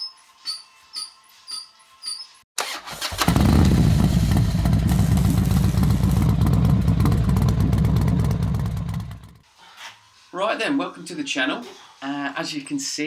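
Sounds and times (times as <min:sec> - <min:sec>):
loud engine running: 0:03.2 - 0:09.4.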